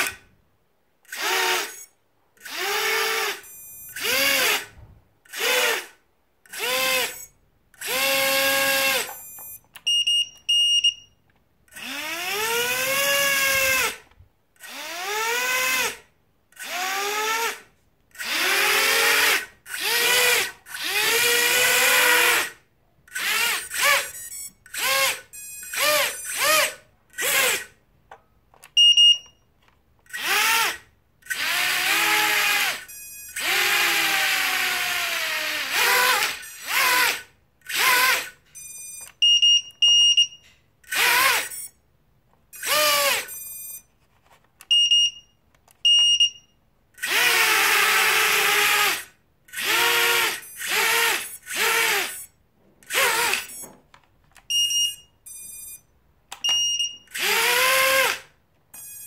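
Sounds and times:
quadcopter motors spinning up: 18.2 - 22.5, 30.1 - 38.3, 47.0 - 52.3, 52.9 - 53.6, 57.1 - 58.2
short high beeps: 54.5 - 57.1, 58.8 - 59.0.

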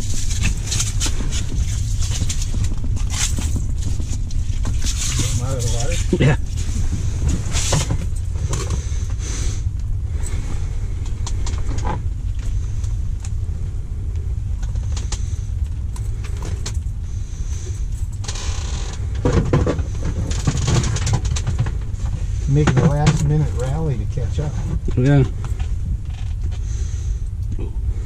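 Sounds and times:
steady low rumble: 0.0 - 28.0
clicks creaks and rustles: 17.8 - 23.8, 24.6 - 26.7.

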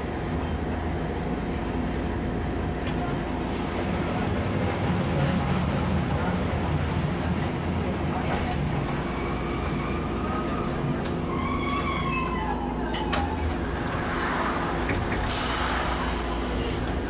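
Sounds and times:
tram wheels rumbling on rail: 0.0 - 17.0.

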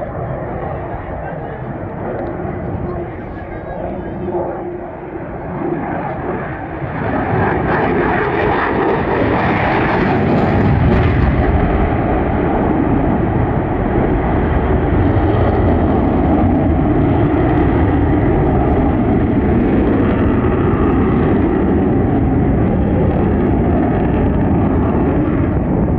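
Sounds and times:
jet engine roar: 0.0 - 25.9.

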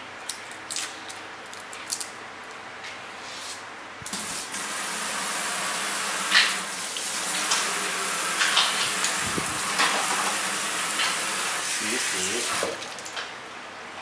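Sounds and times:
water running: 4.1 - 13.3.

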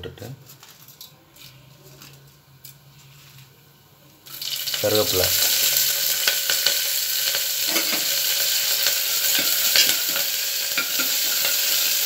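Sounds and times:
seeds sizzling in hot oil: 4.2 - 12.0.

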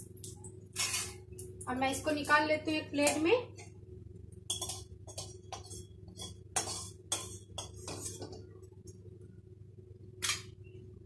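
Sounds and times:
metal utensil clinking on plate: 4.5 - 8.3.

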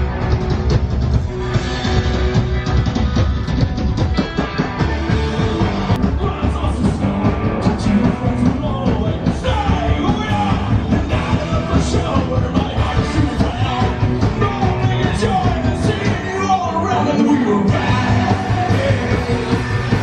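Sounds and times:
drum beat: 0.0 - 16.3, 17.7 - 20.0
guitar: 0.0 - 20.0
punk rock music: 0.0 - 20.0
person singing: 6.0 - 20.0.

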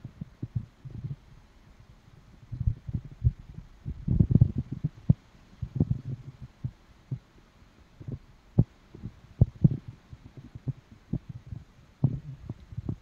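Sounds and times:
wind buffeting microphone: 2.4 - 6.8, 8.0 - 13.0.

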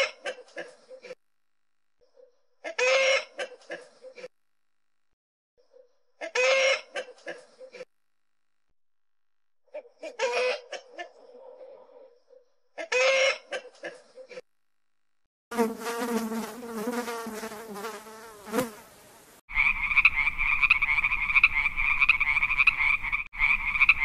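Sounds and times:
rooster calling: 2.6 - 3.4, 6.2 - 7.0
honeybee buzzing: 15.5 - 19.1
frog croaking: 19.5 - 24.0.

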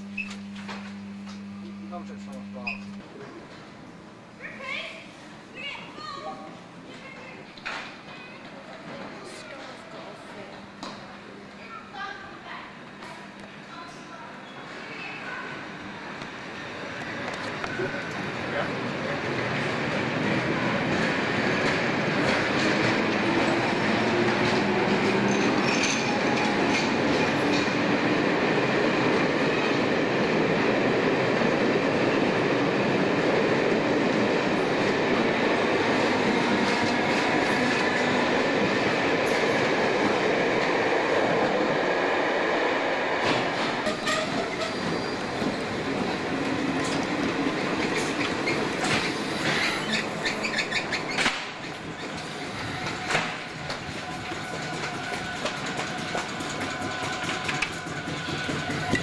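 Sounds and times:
train wheels rumbling on rails: 15.8 - 59.0
wheels squeaking and clicking: 24.4 - 27.7, 43.8 - 45.7, 47.8 - 59.0
high wheel squeal: 43.9 - 45.6, 48.1 - 51.3
electric train running: 51.7 - 59.0.

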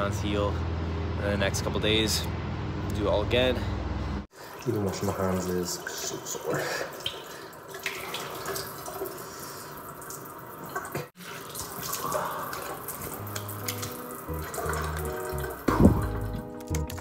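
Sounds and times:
water splashing while rinsing: 4.3 - 16.4
low music notes: 13.2 - 17.0.

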